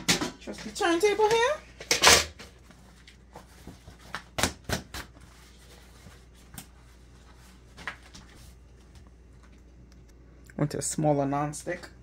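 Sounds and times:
kitchen items clicking and knocking: 0.0 - 2.5.

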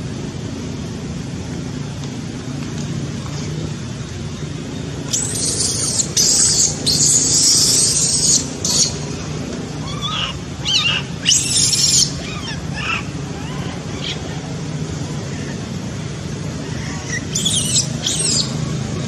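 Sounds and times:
baby monkey squealing cries: 5.1 - 9.0, 9.8 - 14.3, 16.7 - 18.8
baby monkey screaming: 5.1 - 9.1, 9.8 - 14.4, 16.6 - 18.8.

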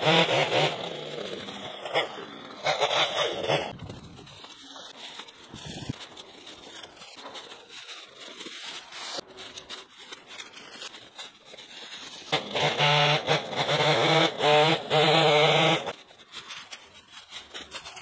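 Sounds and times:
small petrol engine running: 0.0 - 6.0, 10.8 - 16.0
brush rustling and crunching: 0.5 - 13.8, 15.4 - 18.0
footsteps on debris: 3.7 - 12.4.

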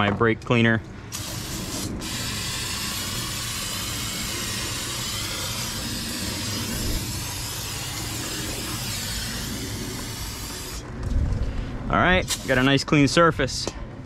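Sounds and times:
aerosol spray hiss: 1.1 - 10.8, 12.2 - 12.8.

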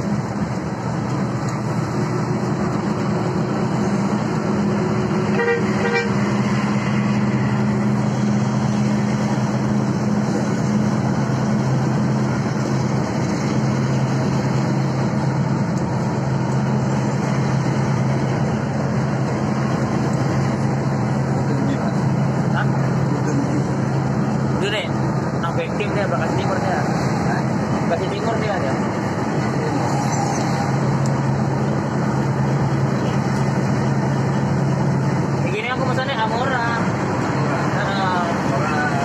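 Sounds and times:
coach engine and road drone: 0.0 - 39.0
vehicle horn: 5.3 - 6.2.

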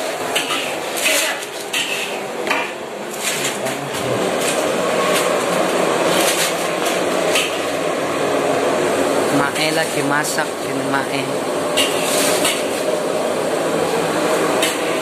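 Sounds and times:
dishes and pots clattering: 0.3 - 5.4, 11.8 - 12.8.

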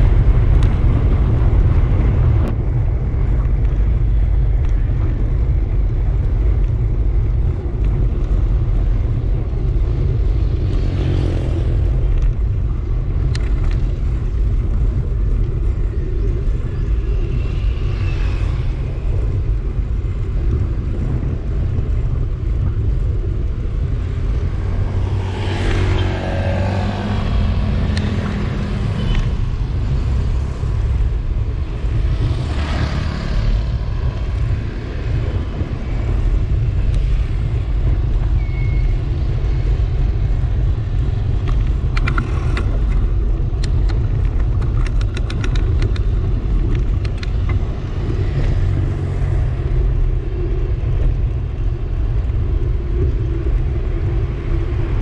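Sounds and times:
bike road noise: 0.0 - 55.0
wind buffeting microphone: 0.0 - 55.0
vehicle passing: 24.4 - 29.1.

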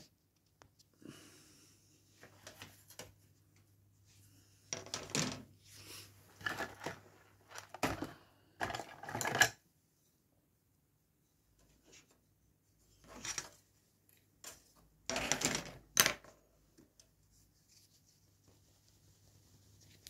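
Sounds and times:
plastic parts clattering on a mat: 4.7 - 5.5, 6.3 - 9.6, 14.4 - 16.4.

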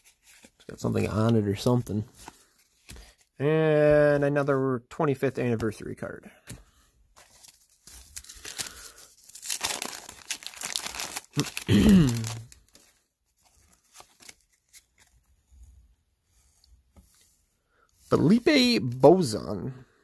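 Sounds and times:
paper wrapper tearing and crinkling: 7.2 - 15.1.

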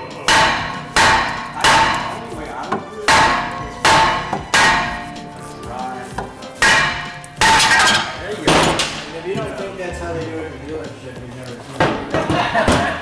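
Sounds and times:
hammer striking metal rotor: 0.2 - 2.3, 3.1 - 5.2, 6.6 - 9.0.

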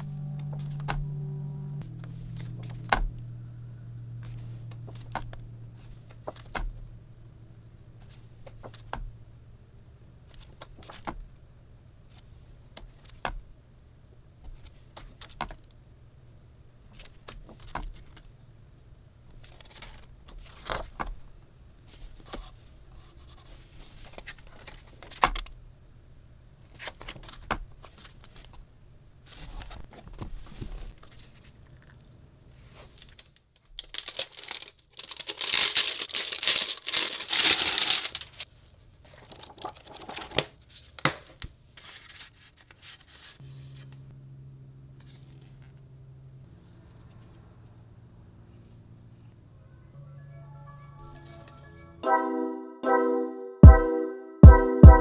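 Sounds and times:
book pages turning: 4.2 - 6.7, 8.0 - 9.0, 12.0 - 13.4, 16.9 - 18.3, 19.3 - 21.2, 23.2 - 25.5, 26.7 - 28.6, 29.2 - 32.0, 32.6 - 44.0, 45.0 - 45.8
book handling: 4.2 - 6.8, 8.0 - 9.1, 12.1 - 13.4, 19.3 - 21.2, 23.4 - 25.6, 26.7 - 28.6, 29.2 - 32.0, 39.1 - 44.0.

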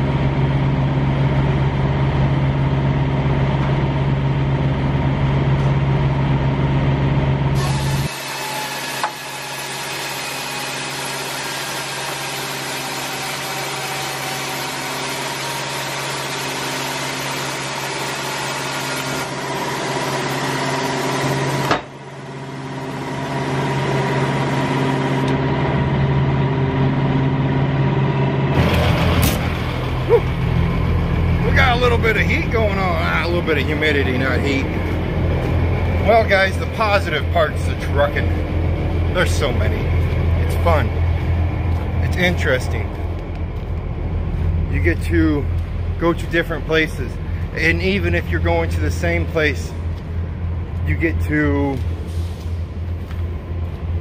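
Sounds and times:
diesel engine idling: 22.1 - 54.0.

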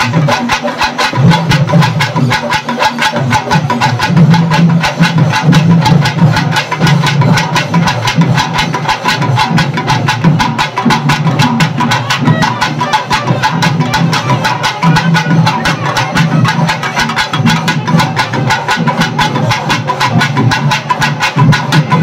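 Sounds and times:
fast even drumming: 0.0 - 22.0.

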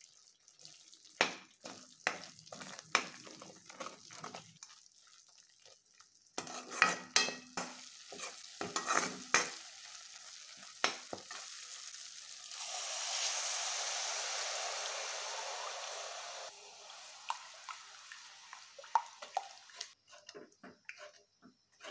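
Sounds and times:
water hissing in hot pan: 0.0 - 20.0
paste frying: 0.0 - 21.9
metal spatula scraping pan: 6.4 - 9.6, 20.0 - 21.9.

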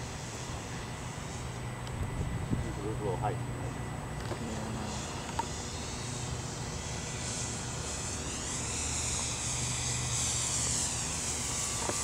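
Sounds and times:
model plane motor whine: 0.0 - 12.0
wind rumble on microphone: 1.8 - 3.0.

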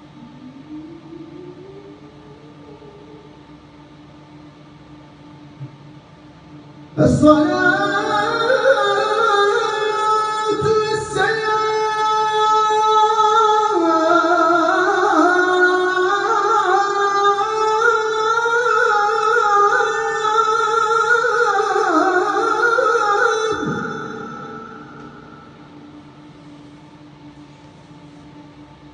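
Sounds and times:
man chanting into a microphone: 7.0 - 25.4.

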